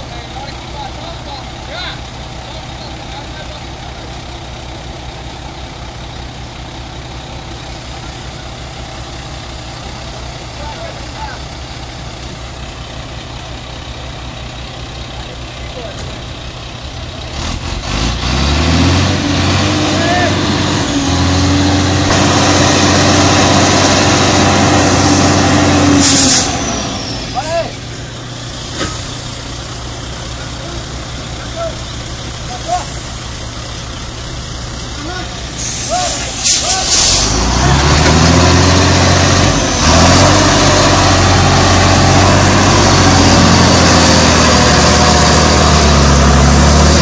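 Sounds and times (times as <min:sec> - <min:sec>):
diesel truck engine under load: 0:00.0 - 0:47.0
short hiss: 0:35.5 - 0:37.4.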